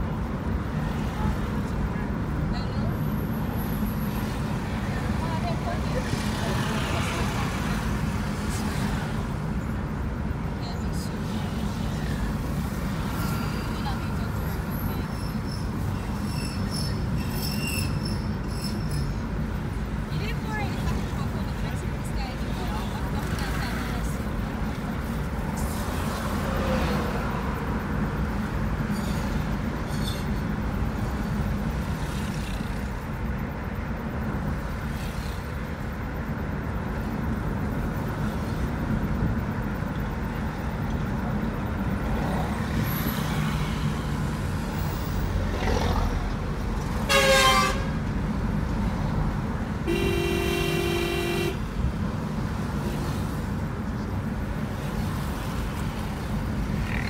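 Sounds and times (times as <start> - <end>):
engine and tyre rumble: 0.0 - 57.0
short vehicle horn: 47.1 - 47.9, 49.9 - 51.6
steady horn blast: 49.9 - 51.6.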